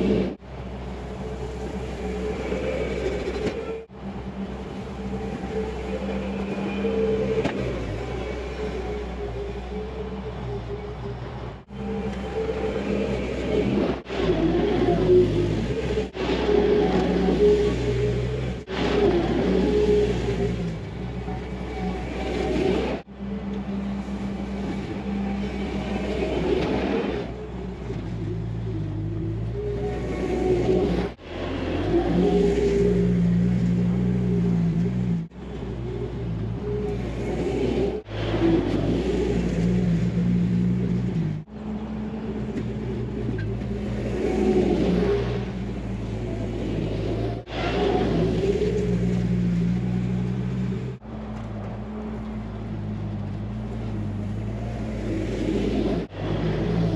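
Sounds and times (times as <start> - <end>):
diesel engine under load: 0.0 - 56.9.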